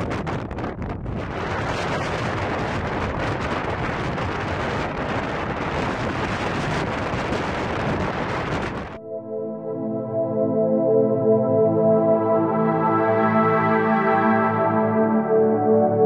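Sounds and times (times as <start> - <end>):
strong wind buffeting microphone: 0.0 - 9.0
ambient music with sustained tones: 9.0 - 16.0.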